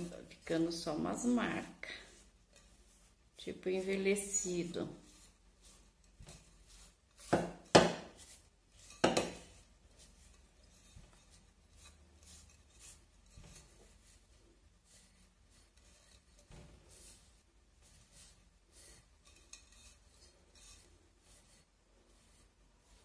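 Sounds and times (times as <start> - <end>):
cloth rubbing ceramic vase: 0.0 - 23.0
objects knocking on work surface: 7.3 - 8.1, 9.0 - 9.4.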